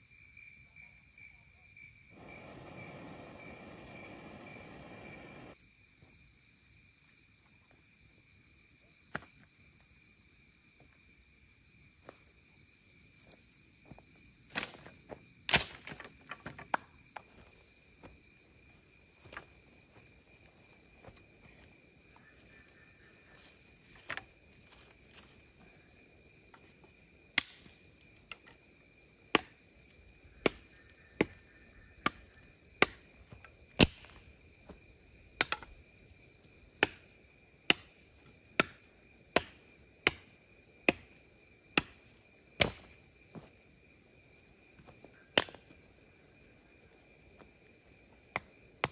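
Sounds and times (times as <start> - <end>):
insect drone: 0.0 - 48.9
knife chopping wood: 32.8 - 33.0, 36.8 - 37.0, 37.7 - 37.9, 38.6 - 38.8, 39.4 - 40.3, 40.9 - 41.1, 42.6 - 42.9, 45.4 - 45.6, 48.4 - 48.9.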